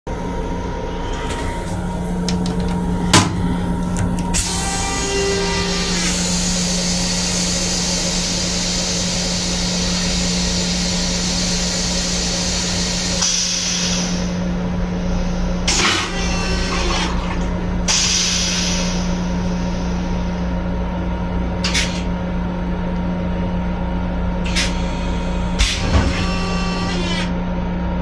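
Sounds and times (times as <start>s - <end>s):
toilet flushing: 0.9s - 14.4s, 15.6s - 20.1s.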